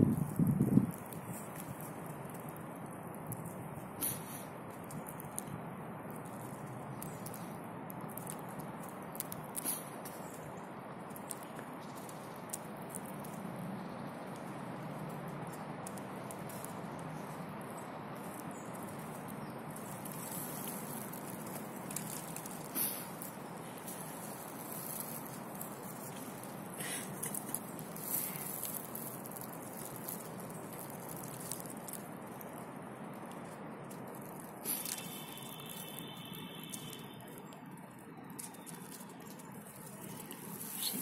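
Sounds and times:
seed shells crackling: 0.0s - 41.0s
steady hiss: 19.8s - 30.4s, 34.5s - 37.2s
background hiss: 21.8s - 25.5s, 34.6s - 37.2s.

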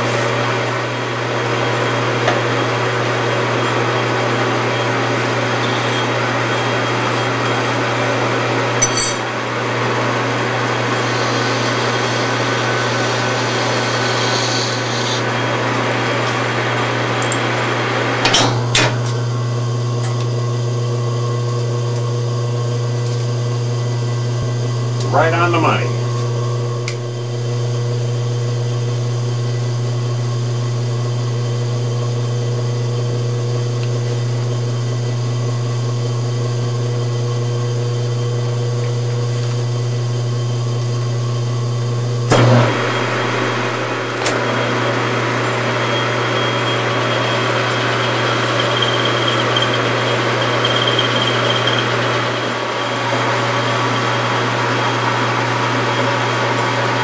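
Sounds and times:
lathe motor hum: 0.0s - 18.2s, 18.9s - 57.0s
cutting tool hissing on metal: 10.6s - 15.3s.

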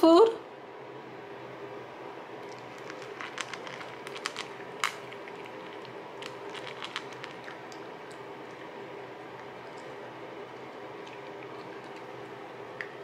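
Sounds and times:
puppy crunching dry kibble: 2.4s - 12.3s.

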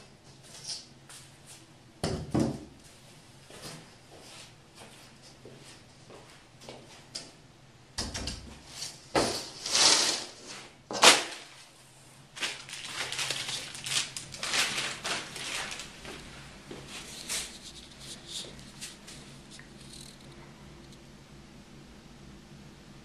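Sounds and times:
scraping and rustling strokes: 8.6s - 11.8s, 12.4s - 20.5s.

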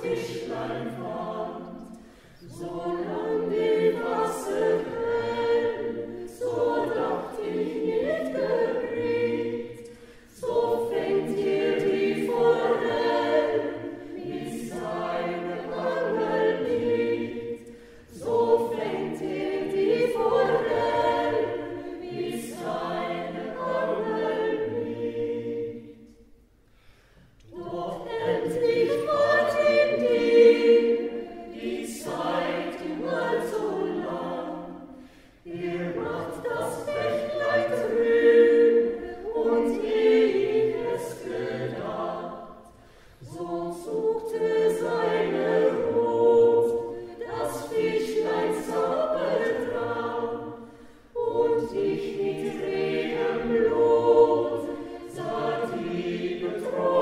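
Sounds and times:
choir singing a cappella: 0.0s - 57.0s.

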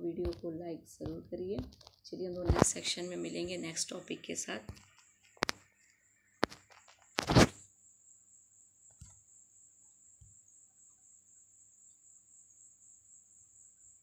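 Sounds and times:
faint cricket trill: 7.3s - 14.0s.

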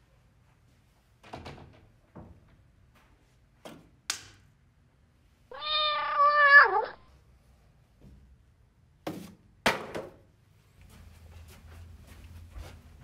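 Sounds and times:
cat meowing: 5.5s - 7.1s.

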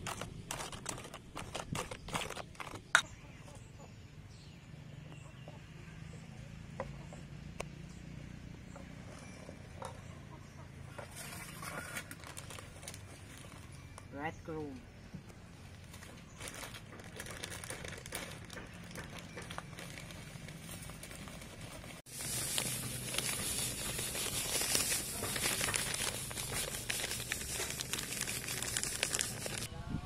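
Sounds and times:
plastic bag crinkling: 0.0s - 3.0s, 11.6s - 14.0s, 15.8s - 29.7s
breadcrumbs pouring onto metal tray: 22.1s - 29.7s.

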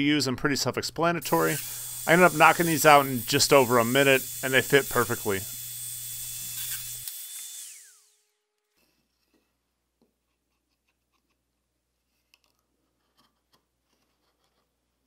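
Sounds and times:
power tool winding down: 1.2s - 8.4s.

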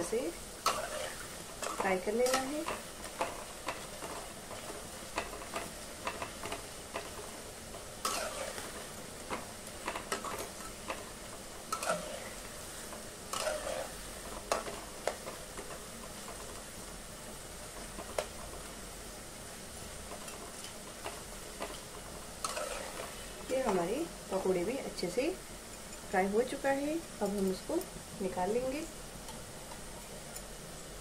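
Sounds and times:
deep-frying sizzle in oil: 0.0s - 31.0s
metal spatula scraping and tapping: 11.7s - 12.3s, 12.9s - 13.9s, 22.4s - 23.1s.

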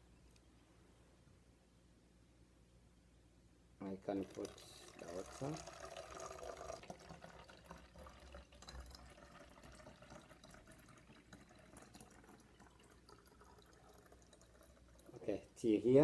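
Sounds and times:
water trickling into plastic bottle: 4.0s - 15.4s.

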